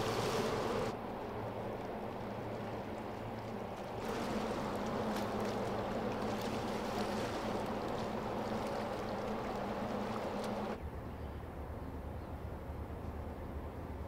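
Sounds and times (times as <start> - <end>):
ship engine hum: 0.0 - 10.8
water rushing along hull: 0.0 - 10.8.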